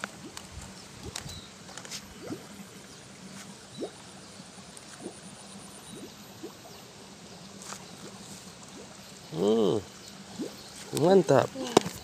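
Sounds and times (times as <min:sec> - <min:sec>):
water gurgling and trickling: 0:00.0 - 0:12.0
bubbly water plops: 0:02.2 - 0:02.5, 0:05.8 - 0:06.7.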